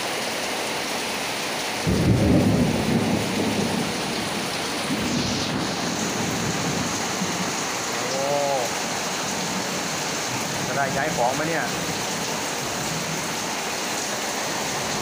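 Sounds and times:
heavy rain pouring onto water: 0:00.0 - 0:15.0
thunder rumble: 0:01.8 - 0:07.7.

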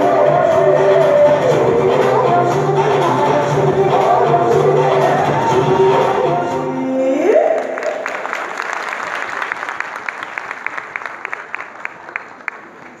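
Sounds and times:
folk dance song with singing: 0:00.0 - 0:08.1.

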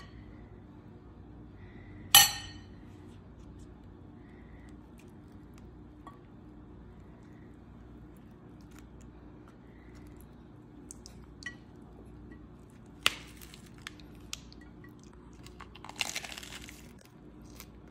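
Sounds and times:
low steady hum: 0:00.0 - 0:17.9
crunching bite into lettuce: 0:15.4 - 0:17.9.

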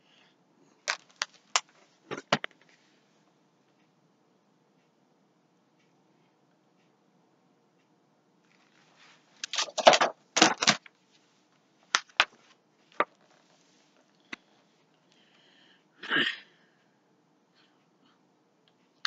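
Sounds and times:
book handling rustles: 0:00.8 - 0:02.8, 0:08.5 - 0:11.3.

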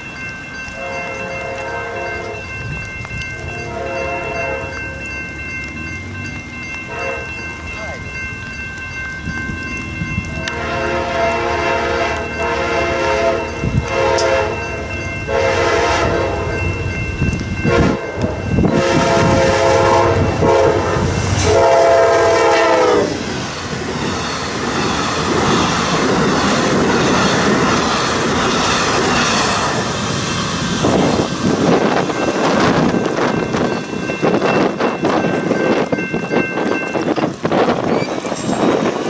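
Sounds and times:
train rumbling past: 0:00.0 - 0:39.0
train air horn blasts: 0:00.8 - 0:02.4, 0:03.6 - 0:05.0, 0:06.9 - 0:07.3, 0:10.4 - 0:16.6, 0:17.6 - 0:23.2.

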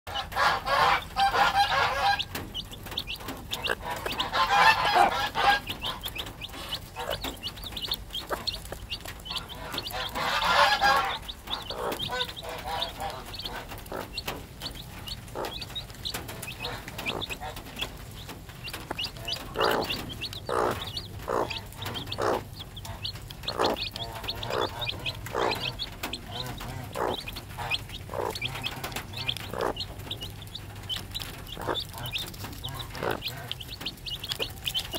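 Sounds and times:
hen harsh calls: 0:00.1 - 0:18.0, 0:18.9 - 0:34.9
chicks peeping: 0:00.1 - 0:34.9
hen clucking low: 0:00.1 - 0:34.9.

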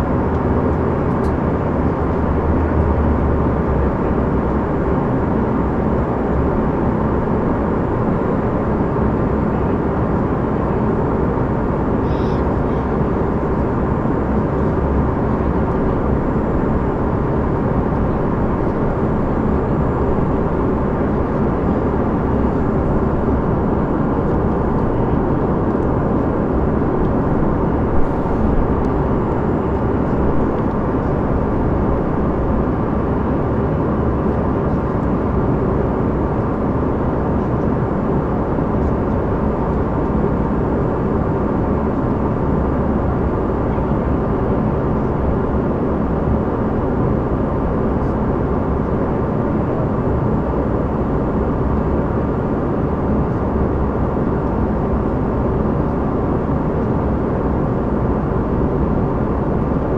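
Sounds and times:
airplane cabin airflow rush: 0:00.0 - 0:59.9
jet engines droning: 0:00.0 - 0:59.9
faint high steady whine: 0:12.0 - 0:34.3.

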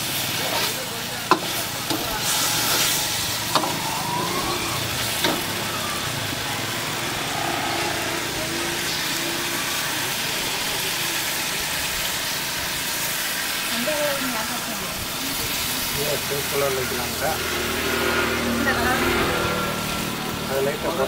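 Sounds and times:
food sizzling in pan: 0:00.0 - 0:17.8.

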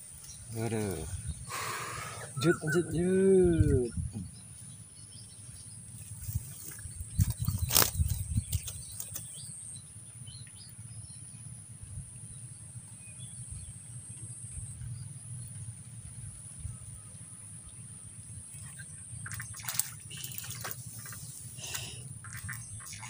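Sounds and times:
small bird chirps: 0:18.8 - 0:23.0.

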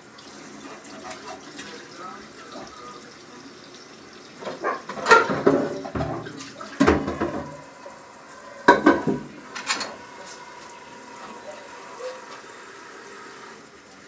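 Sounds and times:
dishes clattering: 0:04.4 - 0:07.7, 0:08.6 - 0:10.4
tap running into a sink: 0:04.4 - 0:07.8, 0:08.6 - 0:12.6.

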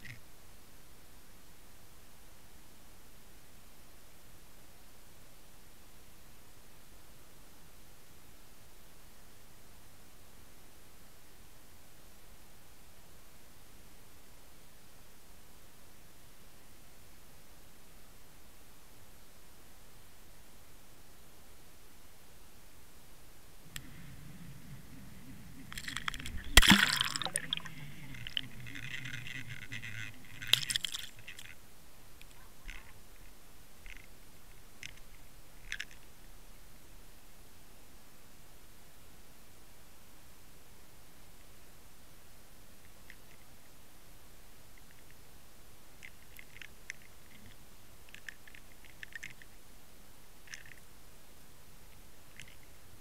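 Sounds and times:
steady hiss: 0:00.0 - 0:53.0
low wavering hum: 0:23.5 - 0:31.5
underwater knocks and rattles: 0:23.8 - 0:31.5.

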